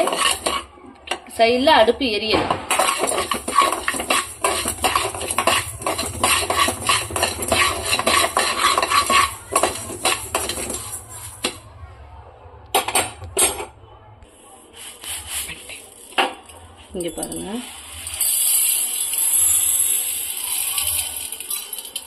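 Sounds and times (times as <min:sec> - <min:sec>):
spatula scraping rice in pan: 0:00.0 - 0:00.7, 0:02.7 - 0:11.6, 0:14.7 - 0:16.1.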